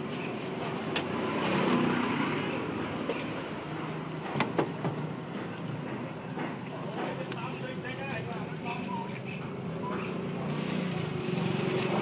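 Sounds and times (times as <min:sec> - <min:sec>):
motor vehicle passing: 0:01.1 - 0:04.4, 0:09.8 - 0:12.0.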